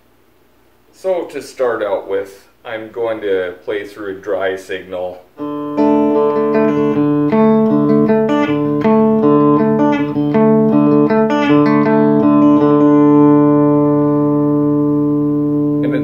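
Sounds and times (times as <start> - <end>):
electric guitar lead line: 5.4 - 16.0.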